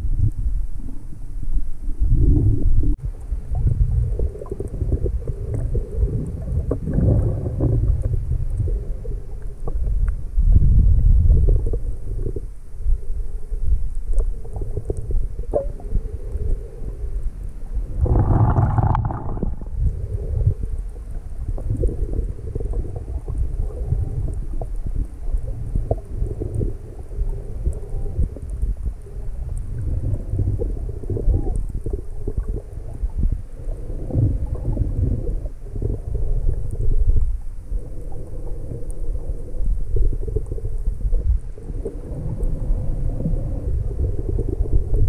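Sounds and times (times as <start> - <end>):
muffled underwater water gurgling: 0.0 - 45.0
rushing water whoosh: 17.9 - 20.0.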